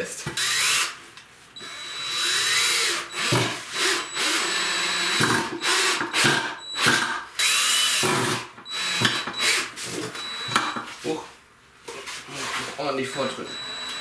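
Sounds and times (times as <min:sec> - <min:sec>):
cordless drill driving screws: 0:00.4 - 0:01.0, 0:01.6 - 0:10.8, 0:13.1 - 0:14.0.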